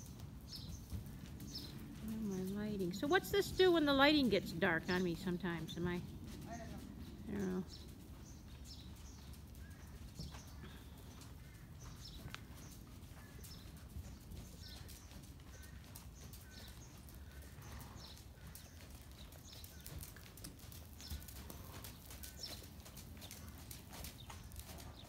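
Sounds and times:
horse hoofbeats on soft dirt: 0.0 - 25.0
small birds chirping: 0.0 - 25.0.

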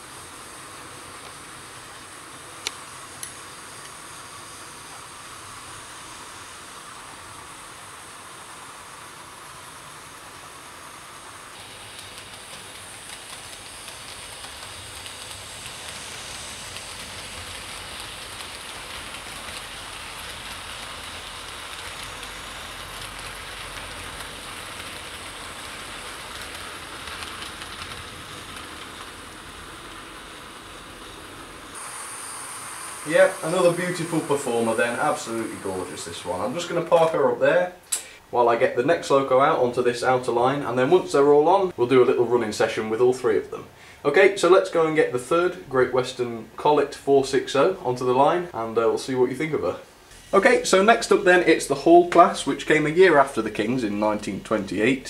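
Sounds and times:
model train running on track: 0.0 - 37.5, 50.4 - 55.0
sharp clicks: 37.9 - 38.1.

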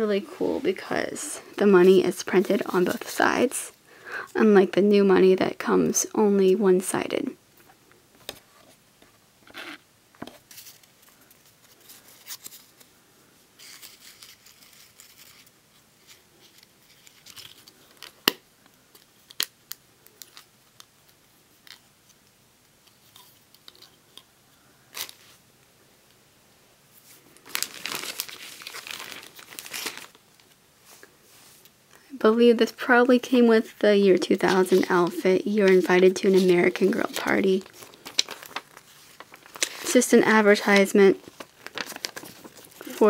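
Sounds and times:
light paper rustles: 10.4 - 12.9, 34.2 - 43.0
plastic bag crinkling: 27.2 - 30.6, 34.2 - 43.0.

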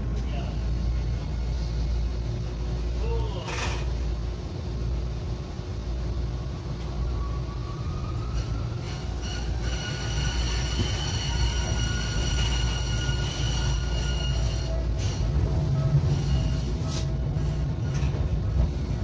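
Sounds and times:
tram wheels rumbling on rails: 0.0 - 19.0
high wheel squeal: 8.3 - 17.1.

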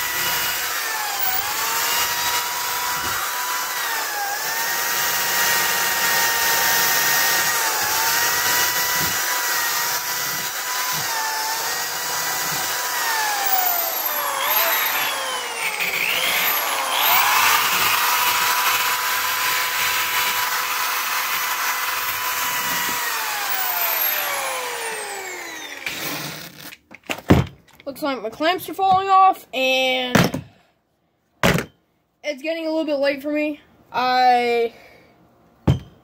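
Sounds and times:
electric drill motor whining: 0.0 - 26.8.

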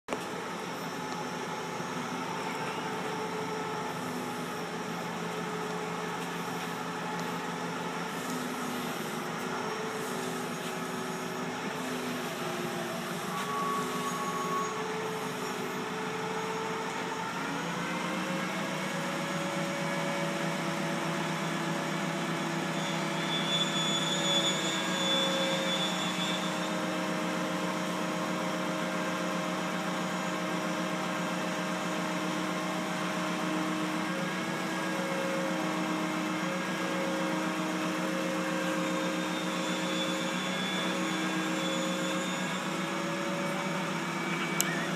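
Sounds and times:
forklift motor humming: 0.1 - 23.4, 24.1 - 44.9
brief high whine: 6.3 - 17.4, 22.4 - 28.0, 38.1 - 44.9.

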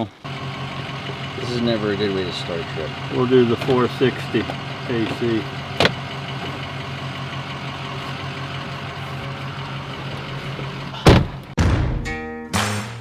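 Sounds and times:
truck engine idling: 0.0 - 11.6
loud thump: 11.0 - 12.1
music: 11.6 - 13.0.

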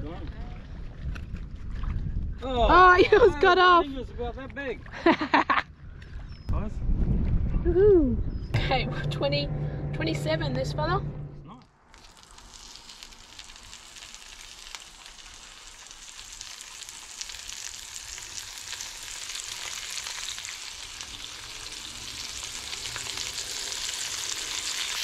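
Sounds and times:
fish sizzling in hot oil: 11.9 - 25.0.

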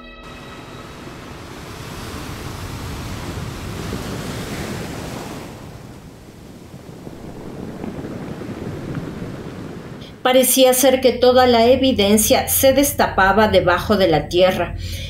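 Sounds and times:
surf washing onto beach: 0.3 - 10.3.

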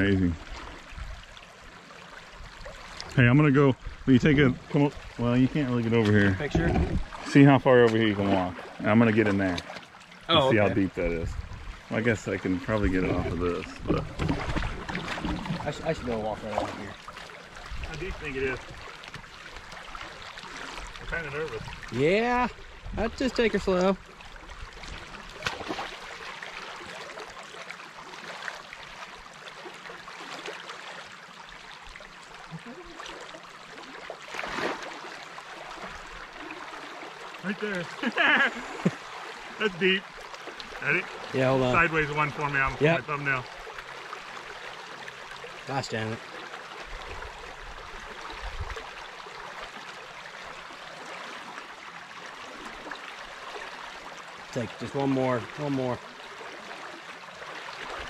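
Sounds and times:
water rushing: 0.0 - 58.0
water rushing through dam breach: 17.8 - 18.7, 37.4 - 40.0, 40.7 - 43.5.

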